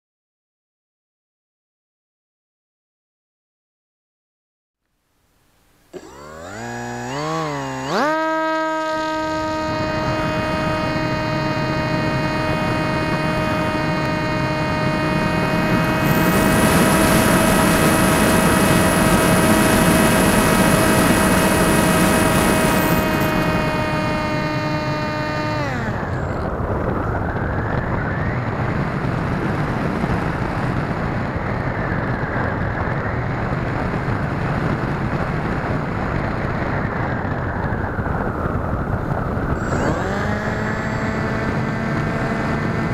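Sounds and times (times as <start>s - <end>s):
electric motor whine: 5.9s - 31.9s, 39.4s - 42.9s
wind rushing over camera: 5.9s - 42.9s.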